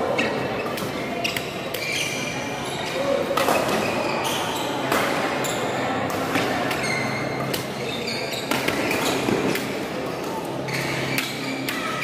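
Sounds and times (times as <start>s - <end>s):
sports hall background noise: 0.0s - 12.0s
rackets striking shuttlecock: 6.0s - 7.8s, 8.4s - 12.0s.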